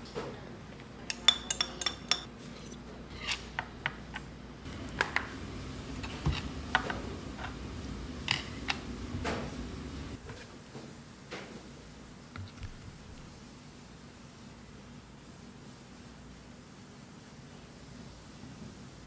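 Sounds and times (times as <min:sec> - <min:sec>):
dishes and utensils clinking: 0:01.1 - 0:04.0, 0:05.9 - 0:07.6, 0:08.2 - 0:09.5.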